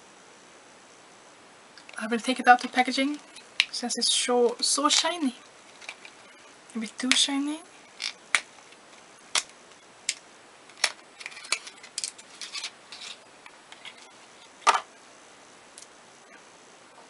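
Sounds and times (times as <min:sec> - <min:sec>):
packaging clicks and crinkles: 0:07.9 - 0:14.5.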